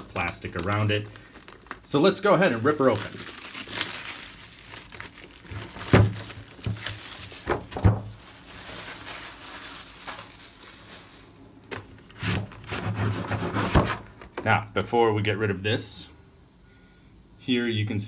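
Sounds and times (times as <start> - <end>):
plastic shrink wrap tearing: 0.0 - 12.8.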